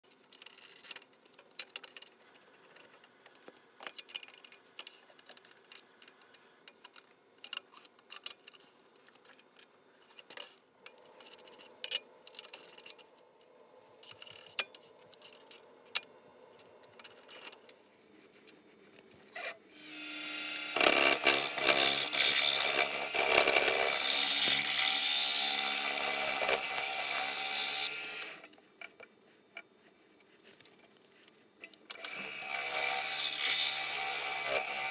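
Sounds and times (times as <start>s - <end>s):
power tool whining and hissing: 19.7s - 28.5s, 32.0s - 34.9s.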